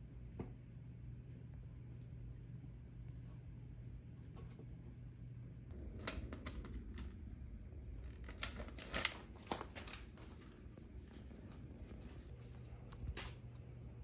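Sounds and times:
paper crinkling and rustling: 0:05.7 - 0:07.2, 0:08.0 - 0:13.9.

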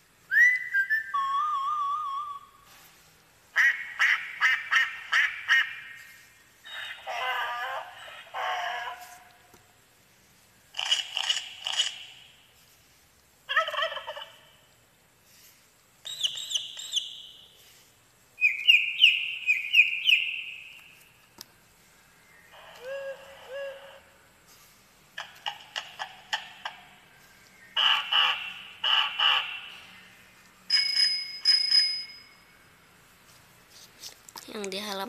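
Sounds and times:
turkey gobbling: 0:03.6 - 0:06.1, 0:06.7 - 0:09.3, 0:13.5 - 0:14.6, 0:22.5 - 0:24.2, 0:27.8 - 0:30.1
recorded farm animal sounds: 0:03.6 - 0:09.5, 0:21.8 - 0:30.4.

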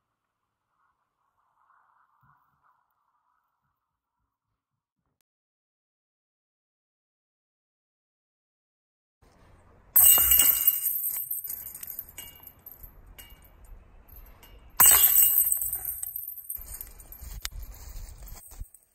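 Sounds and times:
disc golf basket chains jingling: 0:09.5 - 0:18.9.

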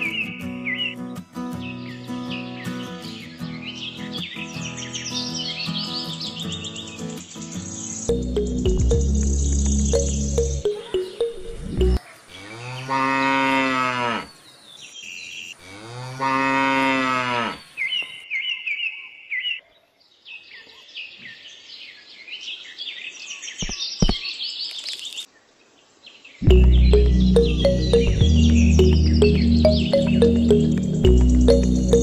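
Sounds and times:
birds chirping and twittering: 0:00.0 - 0:13.0, 0:14.0 - 0:16.1, 0:17.0 - 0:32.0
cow mooing: 0:12.4 - 0:14.3, 0:15.6 - 0:17.6.

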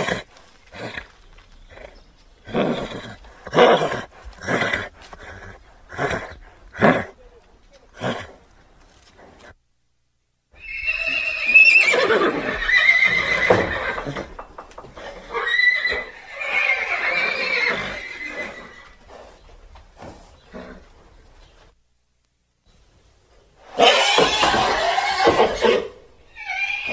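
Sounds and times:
horse whinnying: 0:02.5 - 0:07.2, 0:10.6 - 0:19.0, 0:23.7 - 0:26.9.

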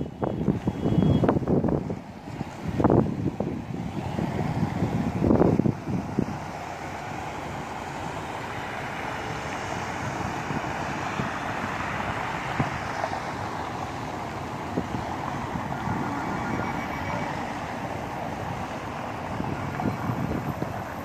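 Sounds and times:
road traffic hum: 0:00.0 - 0:21.0
wind buffeting microphone: 0:00.0 - 0:21.0.

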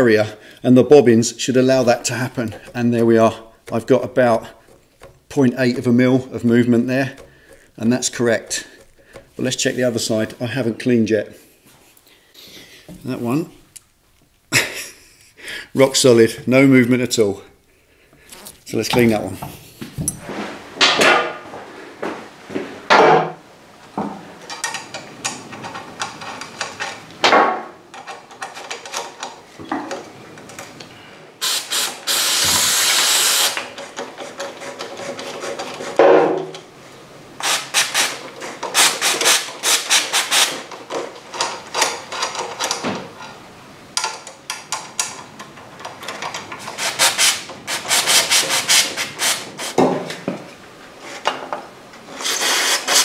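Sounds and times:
hand tool scraping brake disc: 0:01.7 - 0:05.4, 0:06.3 - 0:09.7, 0:32.6 - 0:36.0
aerosol spray hiss: 0:31.4 - 0:33.6.

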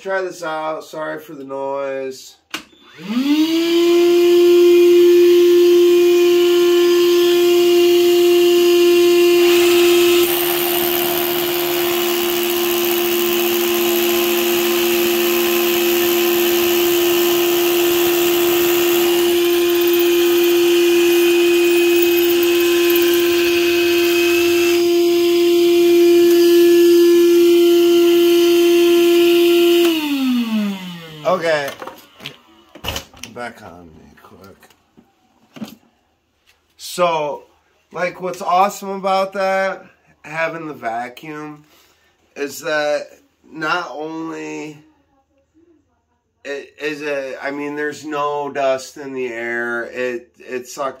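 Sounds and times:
shop vacuum whining: 0:02.5 - 0:32.9
hammer drill grinding: 0:06.1 - 0:32.4.

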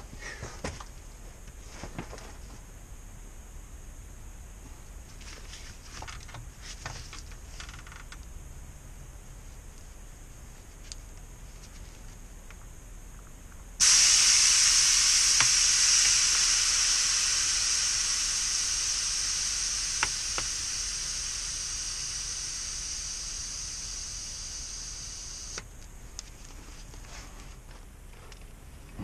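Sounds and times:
aerosol can spraying: 0:13.8 - 0:25.6.

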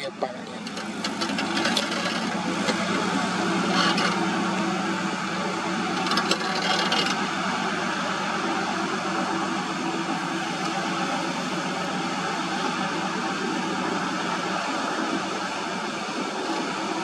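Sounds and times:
diesel truck engine running: 0:00.0 - 0:17.0
rattles and clanks: 0:00.4 - 0:04.7, 0:05.9 - 0:07.3.

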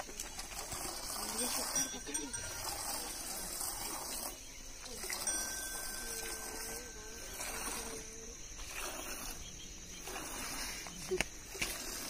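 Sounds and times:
milk squirting into pail: 0:00.0 - 0:01.8, 0:11.5 - 0:12.0
faint wavering tone: 0:01.4 - 0:08.5.

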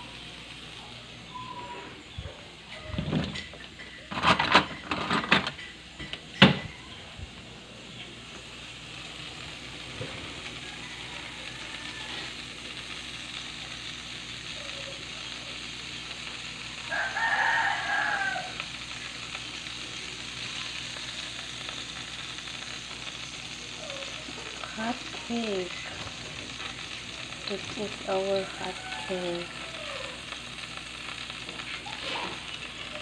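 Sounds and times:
oil sizzling in a frying pan: 0:00.0 - 0:33.0
rooster crowing: 0:10.1 - 0:12.4, 0:16.8 - 0:18.7, 0:28.1 - 0:30.3.

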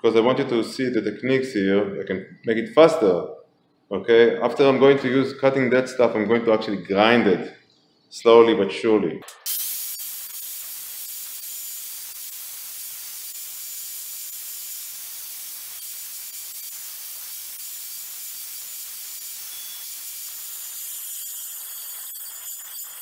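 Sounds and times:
angle grinder grinding tile: 0:13.2 - 0:23.0.

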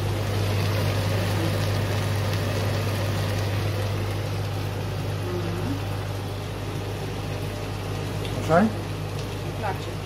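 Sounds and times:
vegetables sizzling in a frying pan: 0:00.0 - 0:10.0.

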